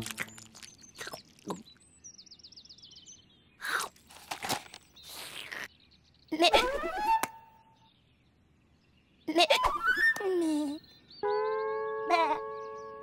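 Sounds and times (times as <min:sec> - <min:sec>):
crunchy fruit chewing: 0:00.0 - 0:01.8.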